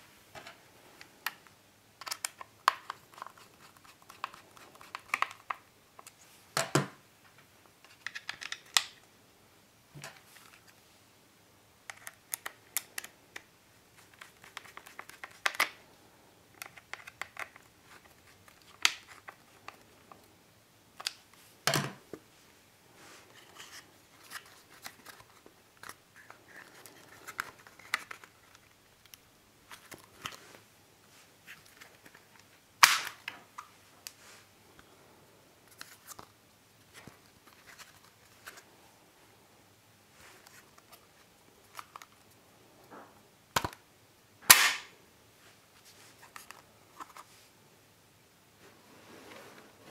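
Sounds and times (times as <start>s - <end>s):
plastic and metal parts clicking: 2.0s - 6.2s.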